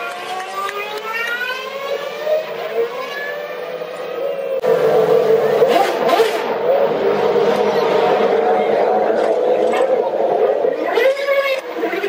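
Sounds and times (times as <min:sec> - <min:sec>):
racing car engines running: 0:00.0 - 0:12.0.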